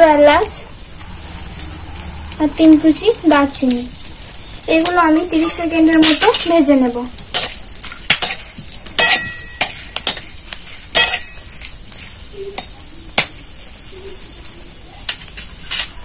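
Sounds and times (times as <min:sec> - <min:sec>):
spices sizzling in hot oil: 0:00.0 - 0:16.0
spatula scraping metal pan: 0:00.3 - 0:06.6.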